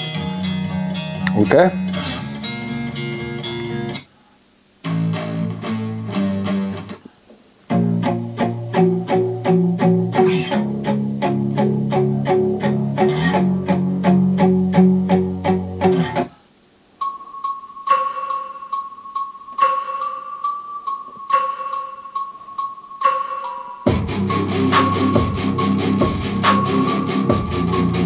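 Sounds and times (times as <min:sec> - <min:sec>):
guitar music: 0:00.0 - 0:04.0, 0:04.8 - 0:07.0, 0:07.7 - 0:16.3, 0:23.8 - 0:28.0
steady high tone: 0:17.0 - 0:28.0.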